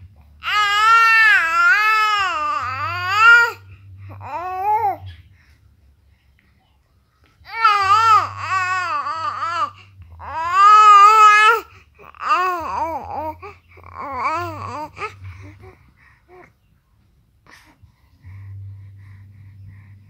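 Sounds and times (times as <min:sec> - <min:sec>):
infant crying: 0:00.4 - 0:05.0, 0:07.5 - 0:15.6.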